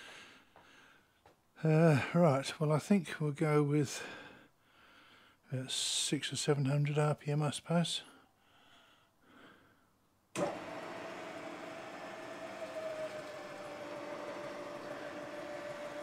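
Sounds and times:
milling machine spindle whine: 10.4 - 16.0.

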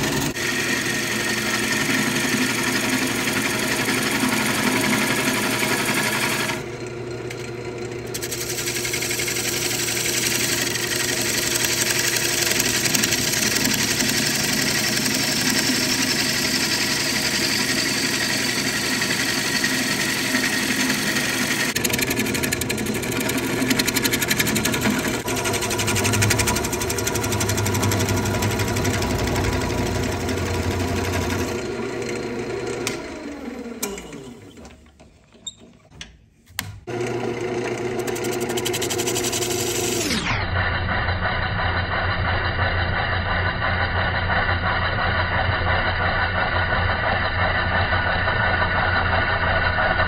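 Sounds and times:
gouge cutting wood: 0.0 - 6.7, 8.1 - 33.2, 36.6 - 40.1
lathe motor hum: 0.0 - 35.6, 36.8 - 50.0.

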